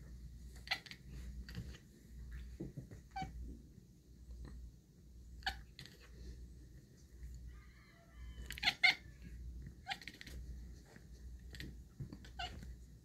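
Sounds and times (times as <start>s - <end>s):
cat chirping and chattering: 0.5s - 1.8s, 3.1s - 3.4s, 5.3s - 6.2s, 8.4s - 13.0s.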